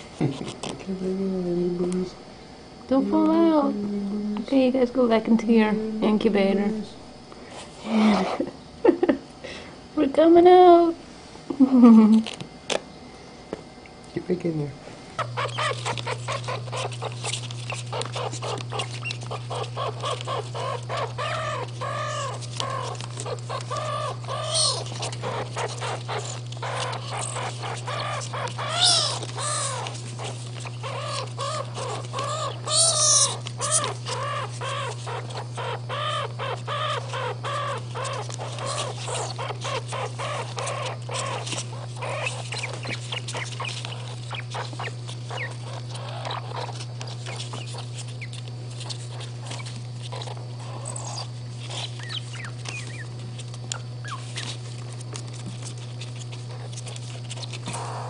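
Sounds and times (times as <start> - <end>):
steady low hum: 0.0 - 58.0
baby skunks chirping: 15.1 - 58.0.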